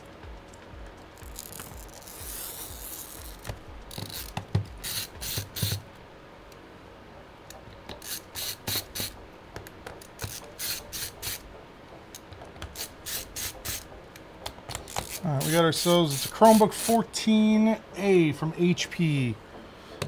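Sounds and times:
screwdriver ratcheting rasps: 1.3 - 5.8, 7.9 - 9.2, 9.9 - 11.4, 12.2 - 13.9, 14.7 - 17.0.

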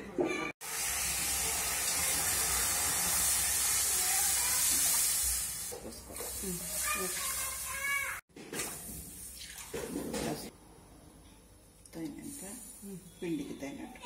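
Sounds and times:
water pouring into metal pan: 0.6 - 8.1.

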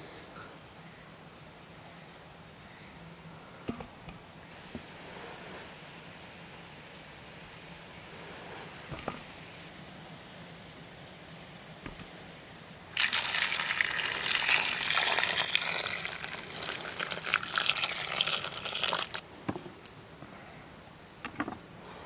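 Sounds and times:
water pouring into metal bowl: 12.9 - 19.2.

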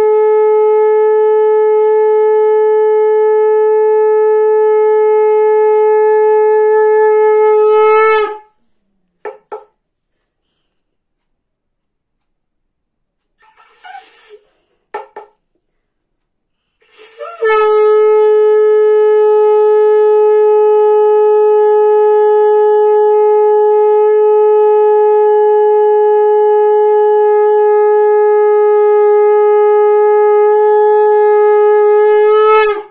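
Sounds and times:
conch shell blast: 0.0 - 8.6, 16.8 - 32.9
faint breathy puffs: 10.0 - 11.0, 13.4 - 14.9, 15.6 - 17.4.

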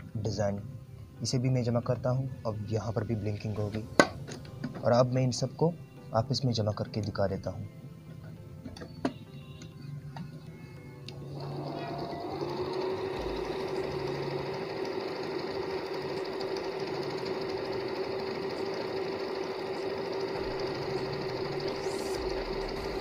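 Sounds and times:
sewing machine stitching: 11.3 - 23.0.

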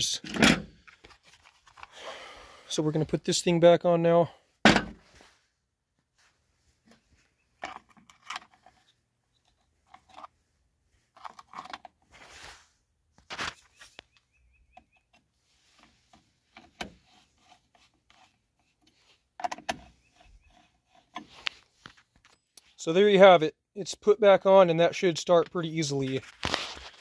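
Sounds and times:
plastic parts clicking and rustling: 0.2 - 2.0, 7.6 - 10.4, 11.1 - 12.1.

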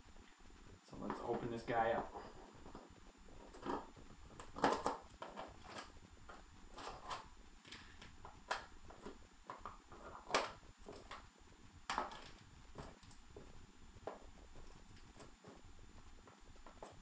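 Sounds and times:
packaging crinkling and scraping: 3.4 - 8.1.

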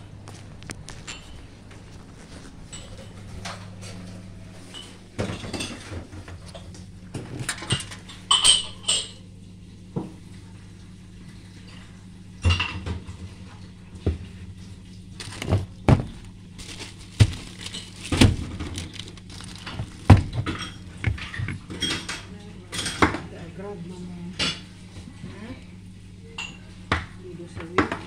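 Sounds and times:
steady low hum: 0.0 - 28.0
dishes and utensils clinking: 2.7 - 6.6, 7.5 - 9.2, 20.4 - 23.2.

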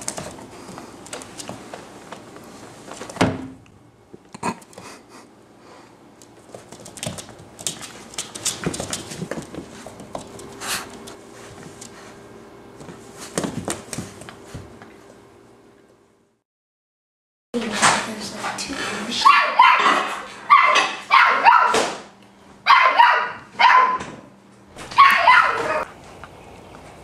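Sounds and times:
dog claws on wooden floor: 0.0 - 3.2, 6.2 - 12.0.

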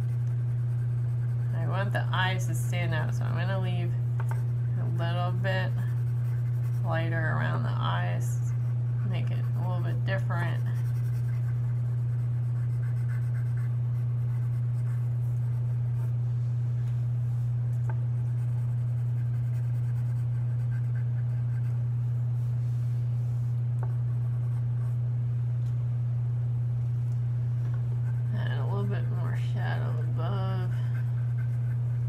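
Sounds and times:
pencil scratching on paper: 0.0 - 16.2, 18.2 - 21.8, 29.8 - 32.0
loud low hum: 0.0 - 32.0.

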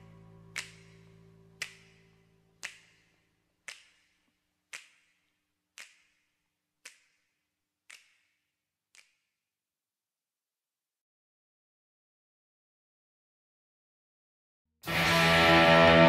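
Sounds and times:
echoing snapping clicks: 0.5 - 9.4.

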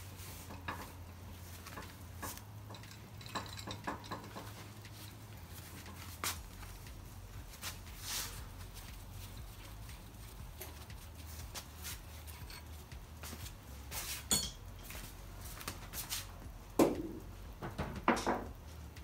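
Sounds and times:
metal tools clicking and knocking: 1.6 - 6.2, 12.2 - 12.8, 14.3 - 15.0
ringing metal clink: 14.3 - 14.7.

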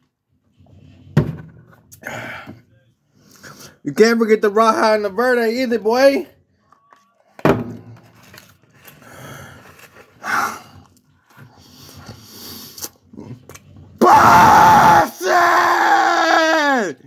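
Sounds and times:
man yelling with mouth full: 14.0 - 17.0.

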